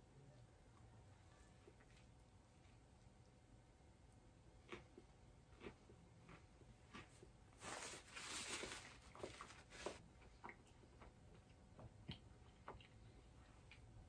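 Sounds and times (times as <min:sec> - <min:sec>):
paper napkin rustling: 0:07.6 - 0:10.0.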